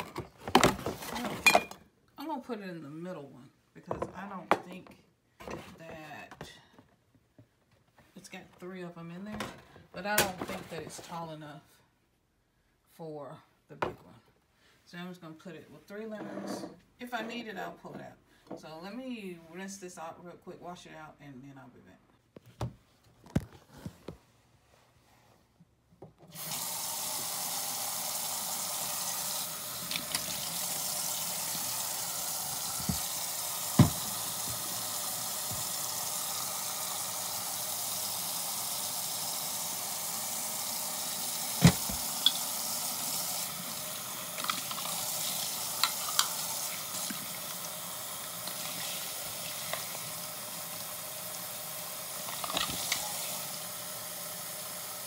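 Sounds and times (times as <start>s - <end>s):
faucet running into steel sink: 26.3s - 55.0s
glass bottle being rinsed: 41.5s - 42.6s.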